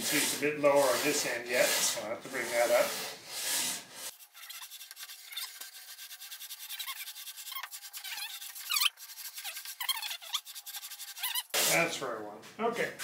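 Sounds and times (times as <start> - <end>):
board scraping on sanding drum: 0.0 - 12.0
small ticks and squeaks: 4.4 - 4.7, 6.8 - 10.5.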